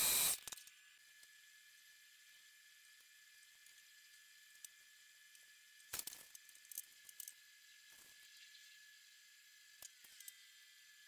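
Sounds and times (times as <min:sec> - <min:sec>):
small metal parts clicking: 0:05.9 - 0:07.4.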